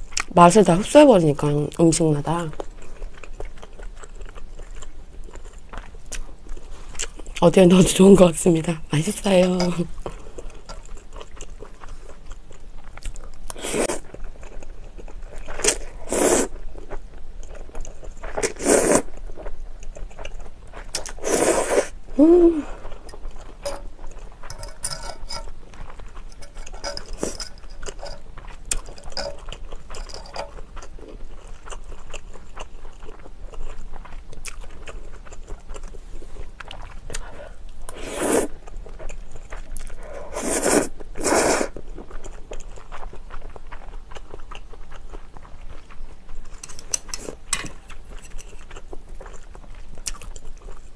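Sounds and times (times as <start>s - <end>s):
chewing: 2.5s - 8.2s, 9.0s - 50.9s
noodle slurps: 15.6s - 16.5s, 18.4s - 19.1s, 21.0s - 22.0s, 37.9s - 38.6s, 40.3s - 41.8s
person humming mm: 22.2s - 22.8s
fork clicks: 23.6s - 23.8s, 24.5s - 25.5s.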